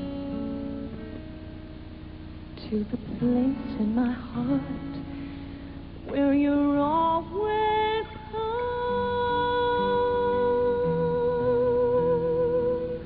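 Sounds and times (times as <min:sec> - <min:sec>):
acoustic guitar: 0:00.0 - 0:13.0
woman singing ballad: 0:02.6 - 0:13.0.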